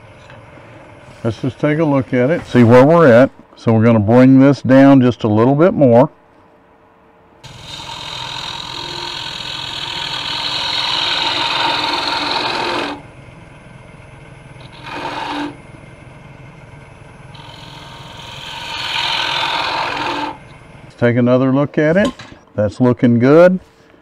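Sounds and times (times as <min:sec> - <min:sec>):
lathe humming: 0:00.0 - 0:02.9, 0:07.4 - 0:21.1
gouge scraping spinning wood: 0:07.4 - 0:21.0.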